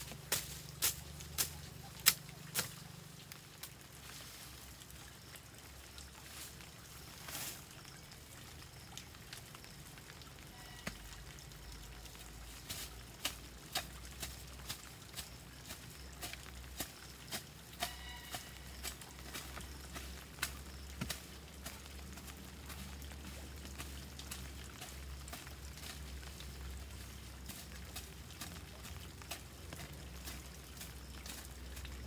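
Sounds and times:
dry sticks knocking and snapping: 0.0 - 2.8
faint garden rustling: 0.0 - 32.0.

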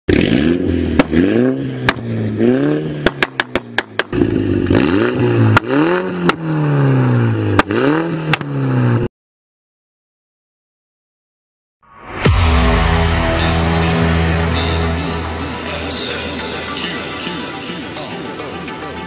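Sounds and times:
car engine revving: 0.1 - 9.1.

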